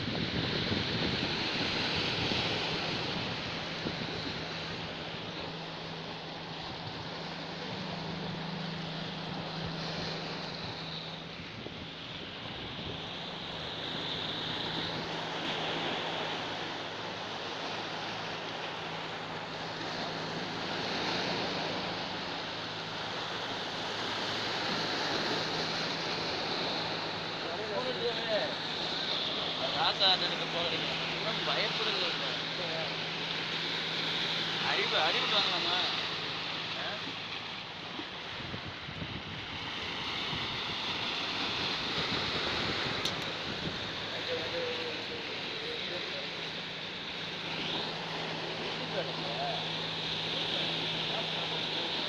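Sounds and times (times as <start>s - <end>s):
wind buffeting microphone: 0.0s - 16.4s, 37.6s - 45.3s
waves splashing over rocks: 0.0s - 52.0s.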